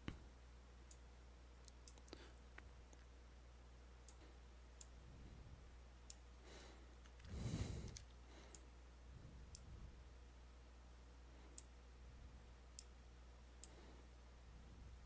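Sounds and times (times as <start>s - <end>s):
low steady hum: 0.0s - 15.0s
computer mouse clicks: 1.6s - 3.1s, 7.0s - 8.7s.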